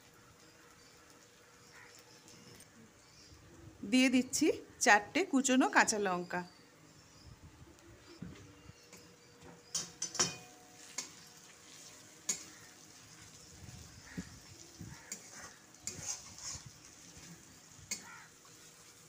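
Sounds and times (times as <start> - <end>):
oil sizzling: 0.0 - 2.7, 9.6 - 19.0
spatula scraping metal pan: 15.1 - 16.8.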